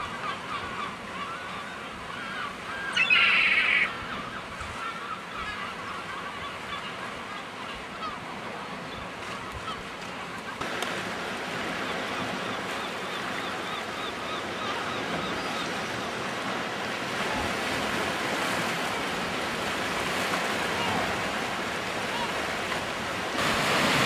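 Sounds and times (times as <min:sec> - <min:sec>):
sea surf washing: 0:00.0 - 0:24.0
faint short bird calls: 0:02.1 - 0:05.7.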